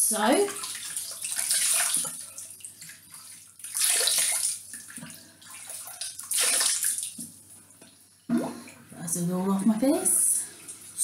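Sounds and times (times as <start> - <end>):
water splashing onto face: 0.5 - 7.3.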